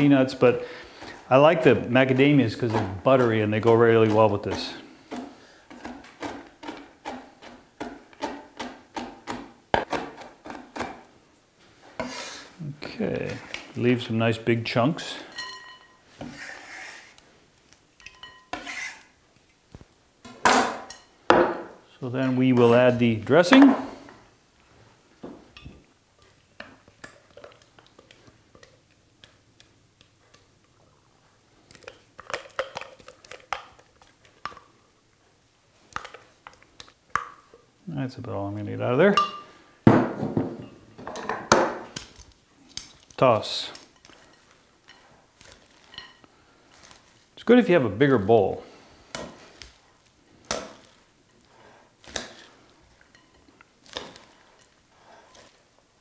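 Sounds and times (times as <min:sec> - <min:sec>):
spatula scraping blender jar: 0:01.0 - 0:07.5, 0:16.2 - 0:17.2, 0:18.5 - 0:19.1.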